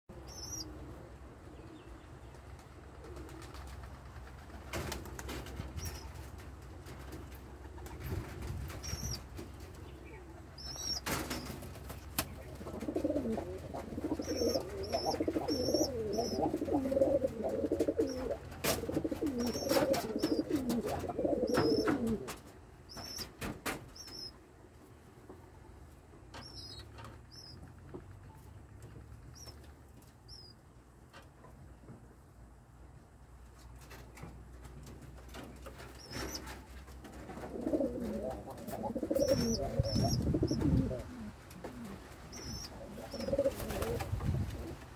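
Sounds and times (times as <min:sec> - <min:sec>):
pigeons cooing: 0:00.2 - 0:01.7, 0:12.3 - 0:23.3, 0:36.0 - 0:44.7.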